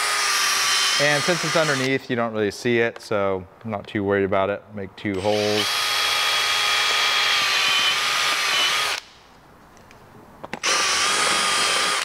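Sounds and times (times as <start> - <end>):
cordless drill boring a hole: 0.0 - 1.9, 5.2 - 9.0, 10.6 - 12.0.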